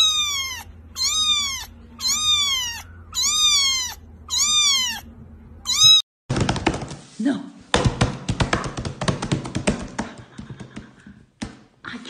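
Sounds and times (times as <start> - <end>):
kitten mewing: 0.0 - 6.0.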